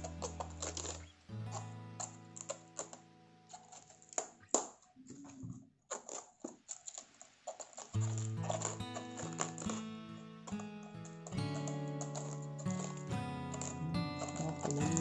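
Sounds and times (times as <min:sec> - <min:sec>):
cabbage leaves crackling and snapping: 0:00.0 - 0:15.0
background music: 0:08.1 - 0:15.0.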